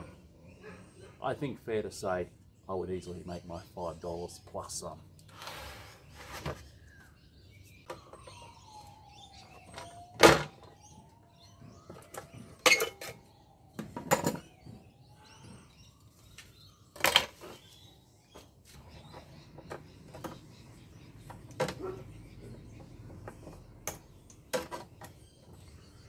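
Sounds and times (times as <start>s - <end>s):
knocks and clatter of metal parts: 9.5s - 14.9s, 21.2s - 25.6s.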